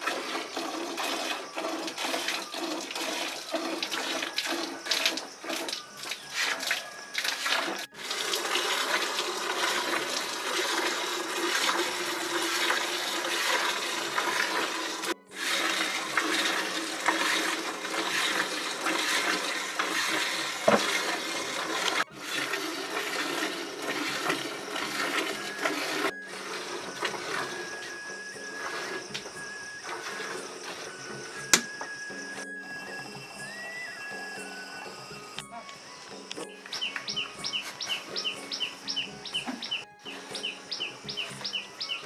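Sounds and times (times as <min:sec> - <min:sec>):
milk squirting into a bucket: 0:00.0 - 0:31.8.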